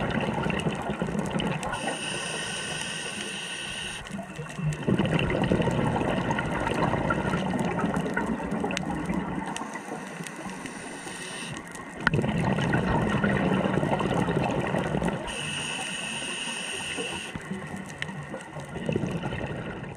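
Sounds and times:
exhaled bubbles rushing: 0:00.0 - 0:03.2, 0:04.0 - 0:10.9, 0:11.5 - 0:15.5, 0:16.9 - 0:19.9
regulator inhalation hiss: 0:01.7 - 0:04.2, 0:09.6 - 0:11.8, 0:15.2 - 0:17.5.

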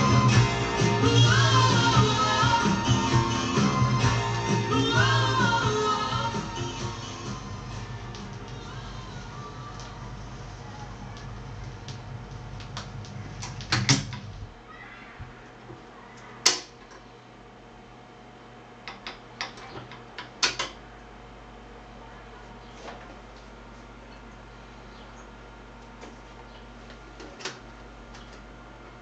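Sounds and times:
quiet music from vinyl record: 0:00.0 - 0:14.6
steady low hum: 0:00.0 - 0:29.0.

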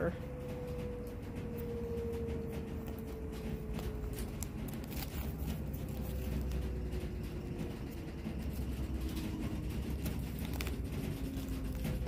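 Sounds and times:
faint hum sinking in pitch: 0:00.0 - 0:12.0
low steady rumble: 0:00.0 - 0:12.0
paper packets rustling in pouch: 0:03.6 - 0:12.0.

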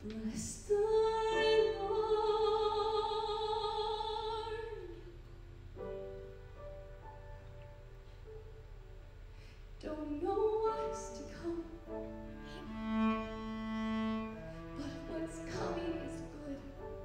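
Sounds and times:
piano playing: 0:05.6 - 0:09.2, 0:10.1 - 0:17.0
cello bowed notes: 0:11.8 - 0:17.0.

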